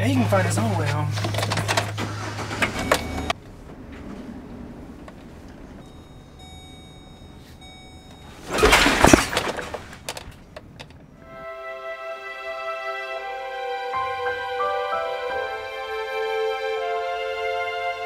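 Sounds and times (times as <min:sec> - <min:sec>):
road and engine noise: 0:00.0 - 0:18.0
music: 0:11.2 - 0:18.0.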